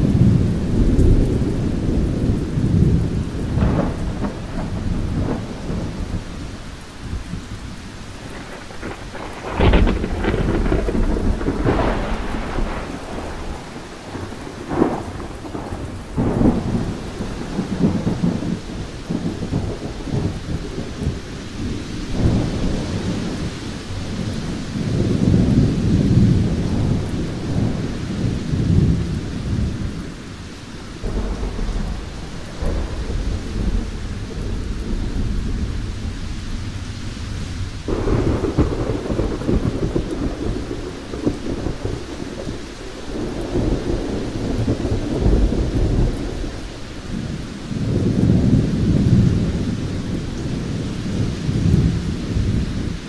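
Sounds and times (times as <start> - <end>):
steady rain: 0.0 - 53.0
thunder rumbling: 0.0 - 53.0.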